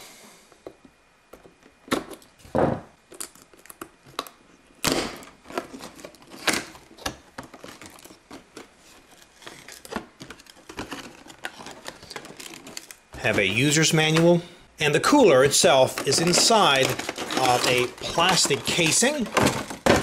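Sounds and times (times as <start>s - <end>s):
cardboard rustling: 5.4s - 14.4s, 15.0s - 20.0s.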